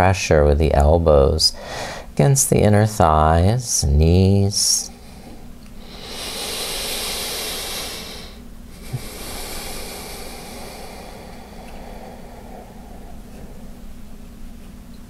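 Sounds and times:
person breathing slowly: 1.5 - 2.1, 4.8 - 13.9.

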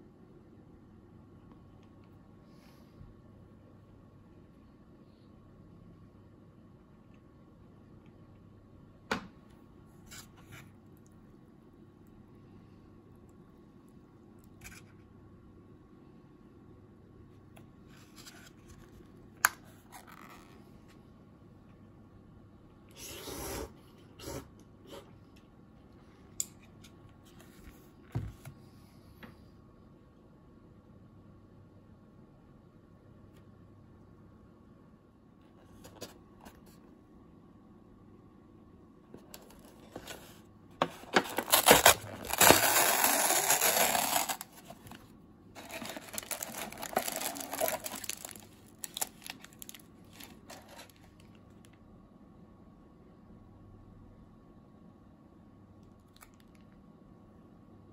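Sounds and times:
foil sachets crinkling: 39.4 - 45.0, 45.6 - 51.3
lid tearing off cup: 40.8 - 44.4.

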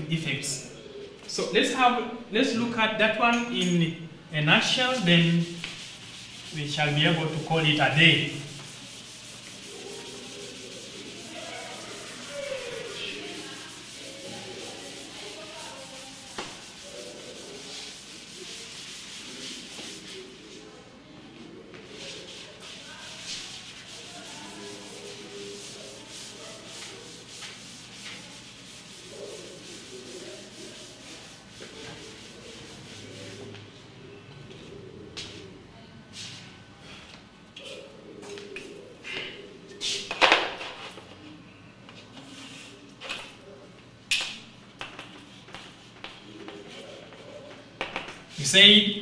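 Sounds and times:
eraser rubbing on chalkboard: 4.6 - 20.7, 21.8 - 33.6, 44.8 - 48.5.

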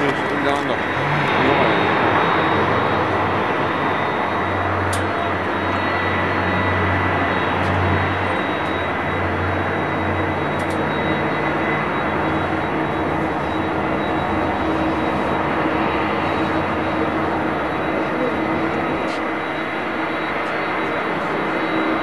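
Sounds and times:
jet engines running: 0.0 - 22.0.

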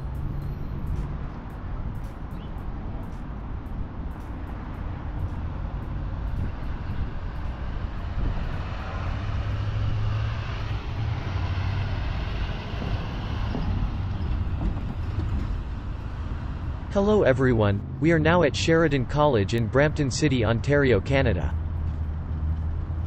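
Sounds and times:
vehicles passing on road: 0.0 - 23.0.

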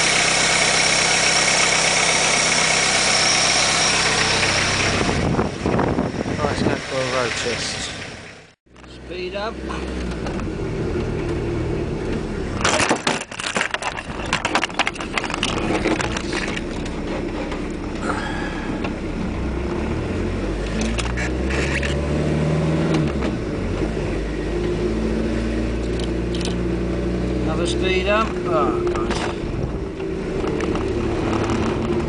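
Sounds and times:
diesel van engine running: 0.0 - 21.9, 23.1 - 32.0
rattling and clattering: 12.6 - 17.8.

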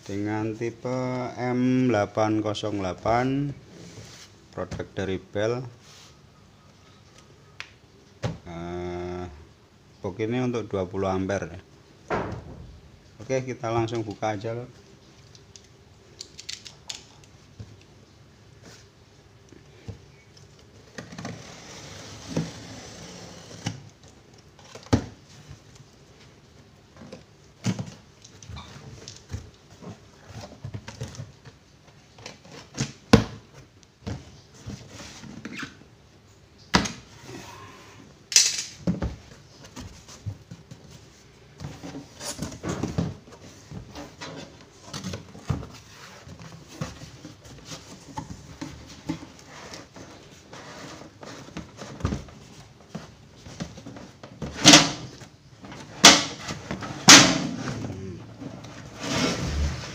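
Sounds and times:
knocks and thuds: 12.1 - 12.9
cardboard flaps scraping and rustling: 39.1 - 59.9.

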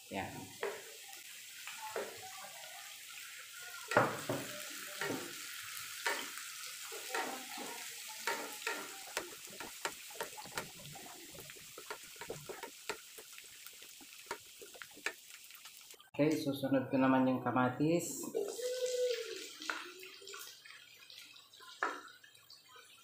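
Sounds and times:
food sizzling in oil: 0.0 - 16.1, 18.1 - 23.0
wooden spatula scraping a pan: 4.1 - 15.9.

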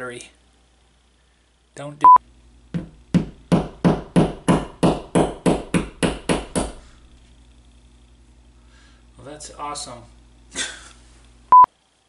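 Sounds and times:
hammer tapping wall anchor: 2.8 - 6.8.

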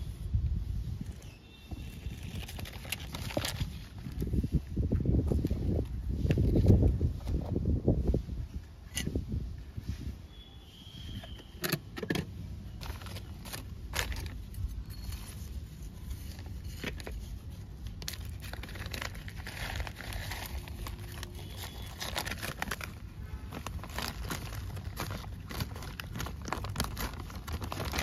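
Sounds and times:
plastic packet crinkling: 2.0 - 4.2, 12.8 - 28.0.

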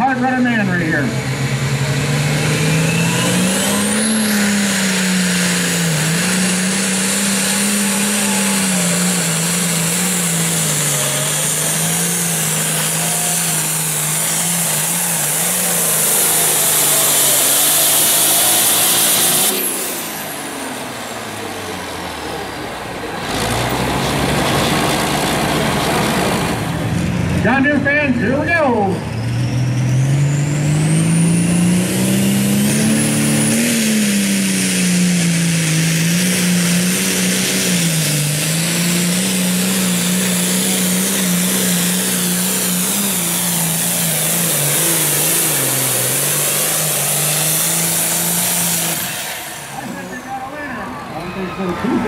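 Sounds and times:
diesel tractor engine revving hard: 0.0 - 52.0.

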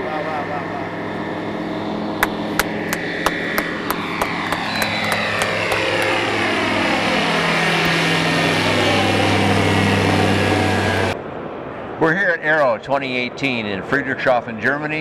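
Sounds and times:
propeller plane engine: 0.0 - 12.0
sharp clicks: 2.2 - 6.2.

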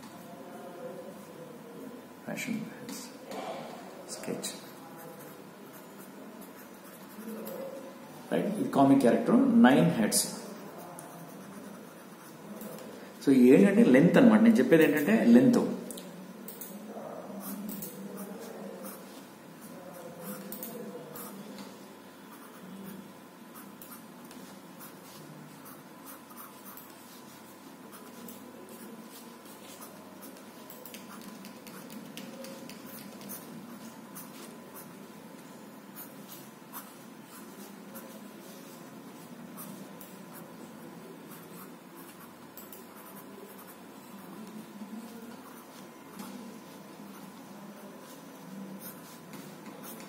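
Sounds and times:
pencil scratching on paper: 5.0 - 7.8, 10.6 - 12.9
pencil sketching on paper: 10.6 - 12.8.

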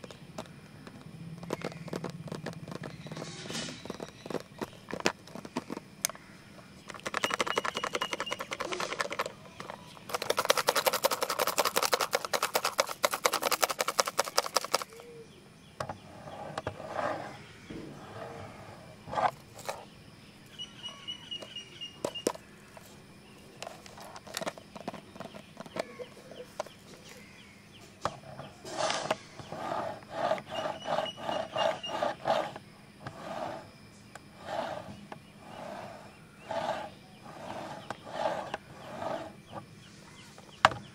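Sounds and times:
fingernails scratching pencil box: 1.4 - 5.8, 6.9 - 14.9, 16.0 - 17.4, 28.1 - 39.6.

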